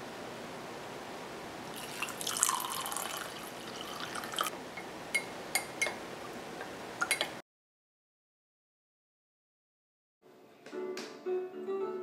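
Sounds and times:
water pouring into a glass mug: 1.7s - 4.5s.

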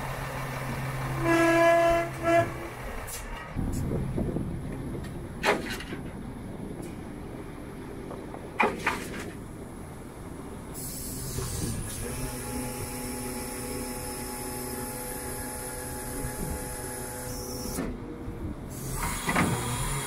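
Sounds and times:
hydraulic system whining: 10.7s - 20.0s.

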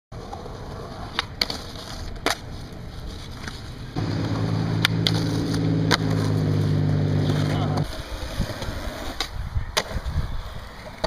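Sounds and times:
skateboard rolling on concrete: 0.1s - 11.0s
skateboard clacks: 0.2s - 6.4s, 7.2s - 11.0s
low engine hum: 4.0s - 7.9s.

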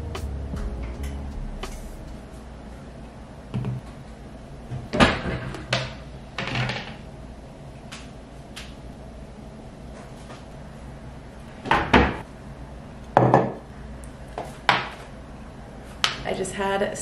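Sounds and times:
objects knocking on countertop: 13.2s - 13.6s.

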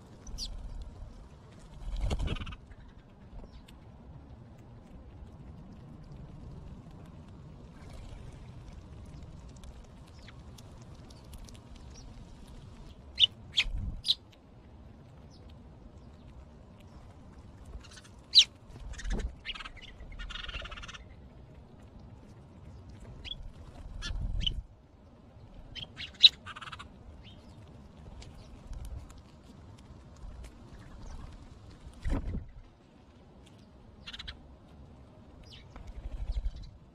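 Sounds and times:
sparrows chirping: 0.2s - 0.8s, 12.8s - 14.2s, 17.8s - 21.2s, 23.2s - 23.4s, 25.7s - 27.6s, 34.0s - 34.4s, 35.4s - 36.8s.

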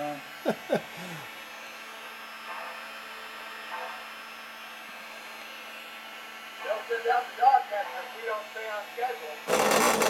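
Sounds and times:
electric buzzing hum: 8.4s - 10.0s.

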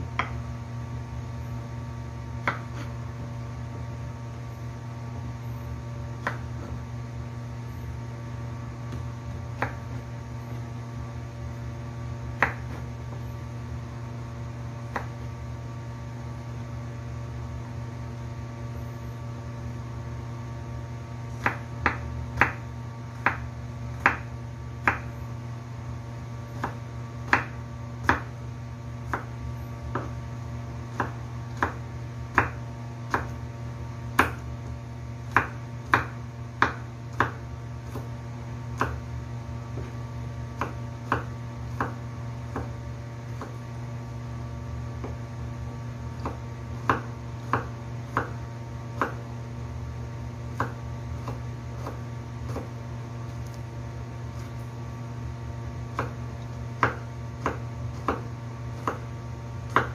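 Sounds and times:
steady low hum: 0.0s - 59.9s
knife chopping on wooden board: 0.1s - 0.4s, 2.4s - 3.0s, 6.2s - 6.8s, 8.8s - 10.1s, 12.3s - 13.2s, 14.8s - 15.2s, 21.3s - 25.2s, 26.5s - 28.4s, 29.0s - 30.2s, 30.9s - 33.4s, 34.1s - 34.5s, 35.2s - 39.1s, 39.7s - 43.7s, 45.0s - 45.3s, 46.1s - 49.3s, 50.5s - 53.6s, 55.9s - 59.9s.

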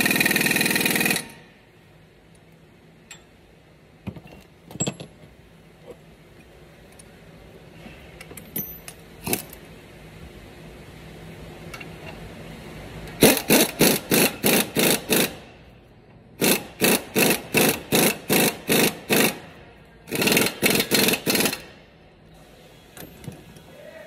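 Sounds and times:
impact wrench hammering: 13.2s - 15.4s, 16.4s - 19.5s, 20.1s - 21.7s.

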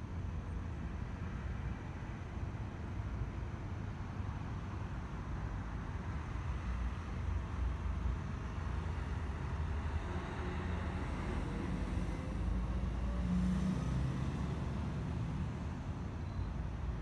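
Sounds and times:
distant road traffic rumbling: 0.1s - 17.0s.

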